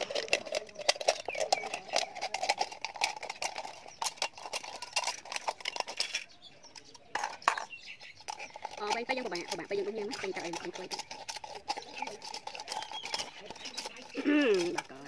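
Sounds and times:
scissors snipping aluminium can: 0:08.2 - 0:15.0.

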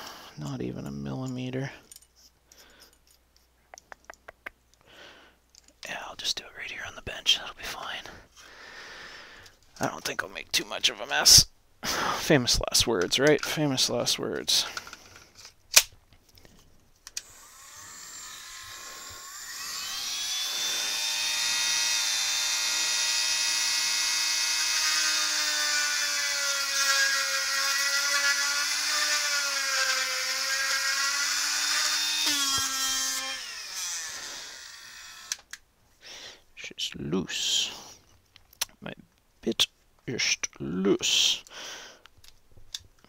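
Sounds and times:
rotary tool whining: 0:17.1 - 0:35.6.

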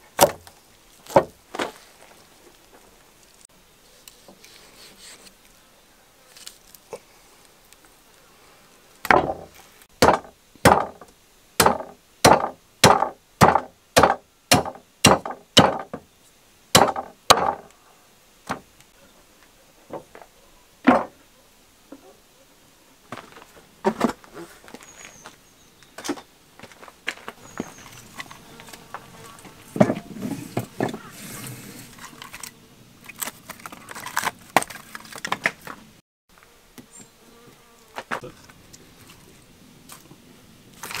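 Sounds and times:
cleaver chopping on wooden board: 0:09.1 - 0:11.0, 0:11.6 - 0:16.0, 0:16.8 - 0:17.7.

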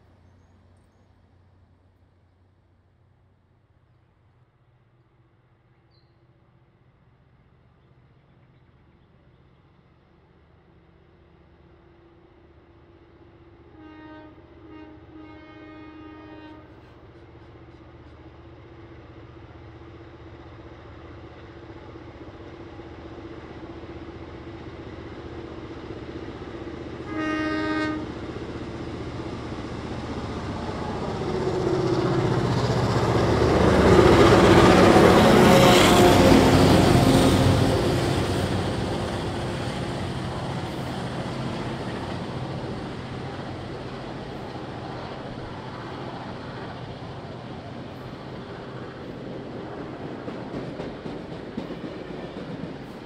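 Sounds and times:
diesel locomotive engines: 0:00.0 - 0:53.0
locomotive horn: 0:13.7 - 0:16.9, 0:27.0 - 0:28.2, 0:33.6 - 0:38.9.

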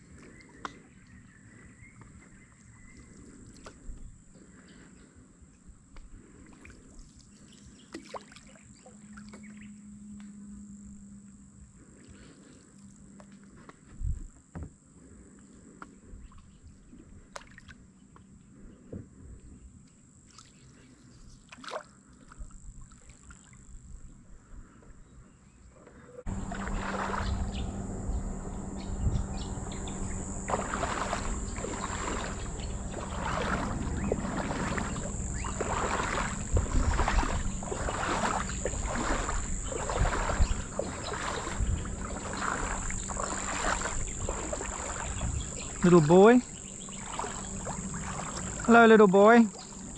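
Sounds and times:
footsteps splashing in shallow water: 0:00.0 - 0:04.6, 0:05.9 - 0:09.7, 0:15.8 - 0:18.2, 0:19.8 - 0:23.8, 0:26.3 - 0:49.9.

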